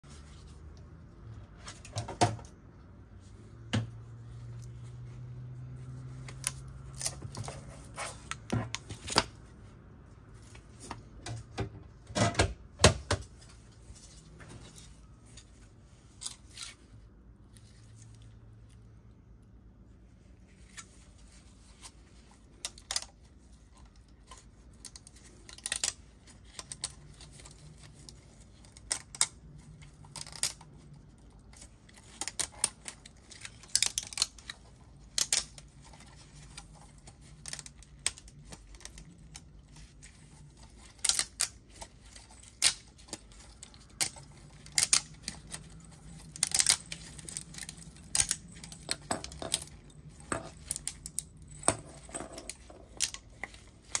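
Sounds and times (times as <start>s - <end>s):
plastic segments clicking and rattling: 40.2s - 54.0s.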